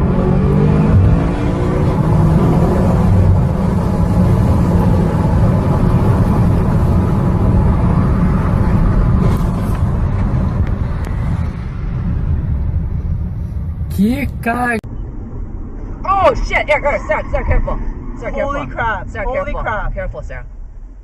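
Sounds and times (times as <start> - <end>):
car engine and road noise: 0.0 - 21.0.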